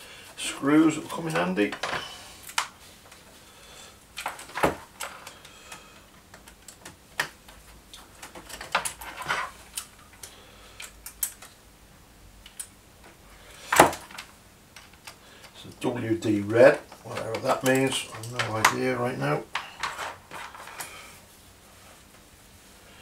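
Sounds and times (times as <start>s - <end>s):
small clicks and taps of parts: 4.2s - 11.6s, 12.4s - 13.2s, 13.8s - 15.8s.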